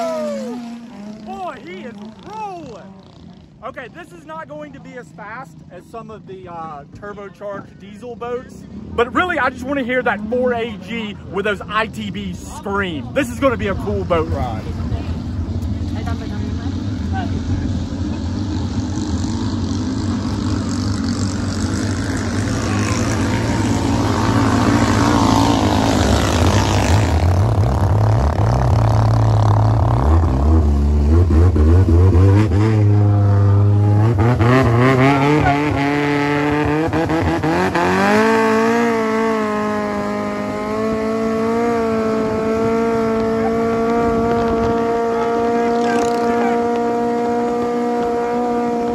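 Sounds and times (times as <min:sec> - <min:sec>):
boat engine revving: 0:00.0 - 0:02.9, 0:16.9 - 0:48.9.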